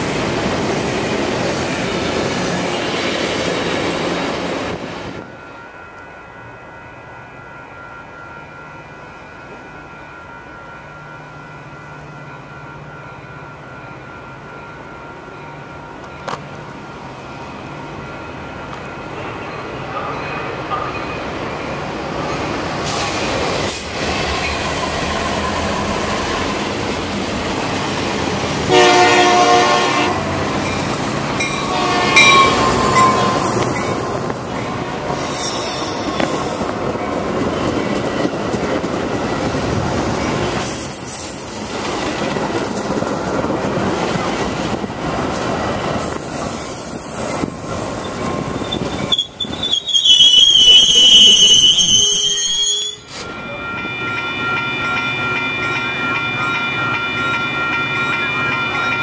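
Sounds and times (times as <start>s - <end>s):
train cars rolling past: 7.9s - 59.0s
train horn blast: 28.6s - 30.4s, 31.6s - 33.6s
wheel and brake squeals: 48.0s - 53.6s.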